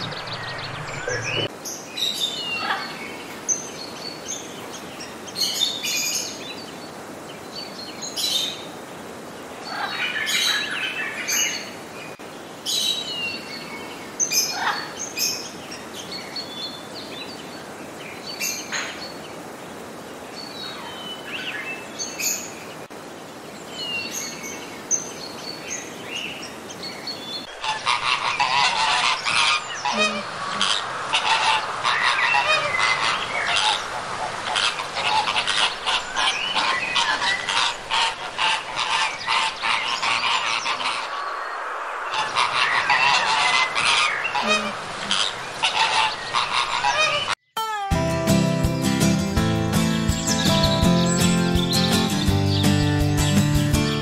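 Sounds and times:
flamingos honking and chattering: 0.0 - 1.5, 27.4 - 47.4
bird calls and chirps: 0.0 - 8.7, 50.0 - 53.8.

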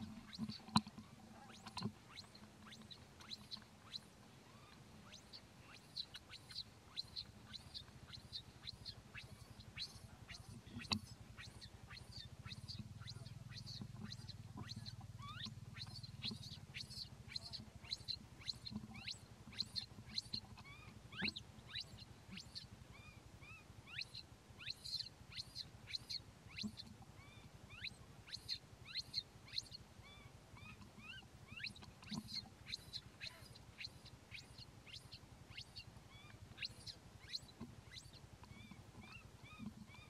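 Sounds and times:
faint low hum: 0.0 - 40.0
baby monkey crying squeaks: 11.4 - 40.0.

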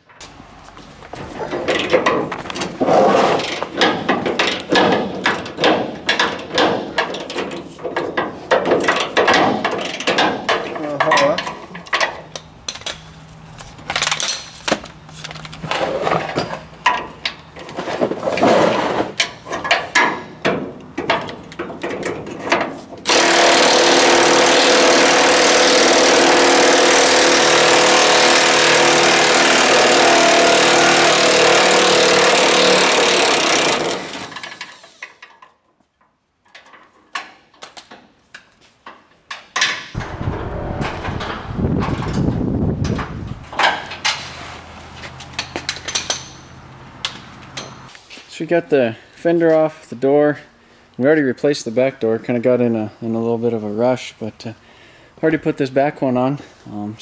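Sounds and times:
power wrench running: 23.0 - 35.1.

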